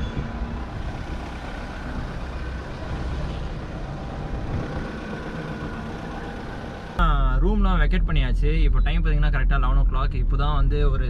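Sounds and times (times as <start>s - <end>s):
car engine idling: 0.2s - 8.3s.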